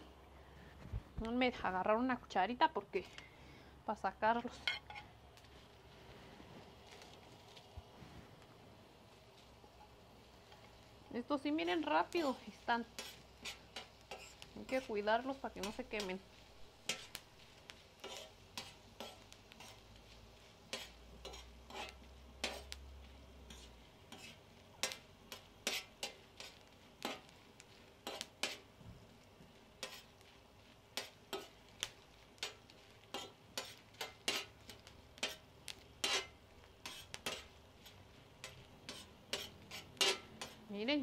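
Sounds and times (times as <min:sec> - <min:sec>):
metal spoon clicking on hot griddle: 0:11.6 - 0:16.2, 0:16.8 - 0:19.8, 0:20.7 - 0:22.9, 0:23.5 - 0:28.7, 0:29.8 - 0:30.3, 0:30.9 - 0:40.6.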